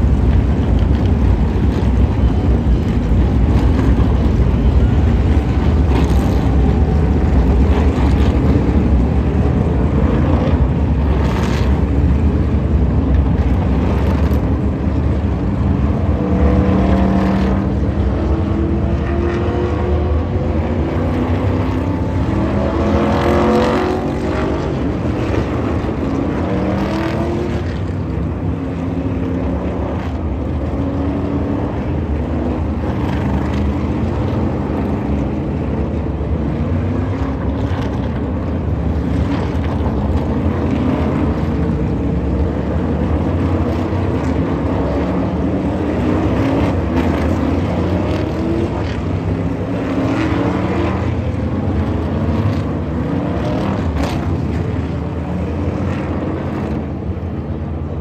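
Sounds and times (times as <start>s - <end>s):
race car engines passing: 0.0s - 58.0s.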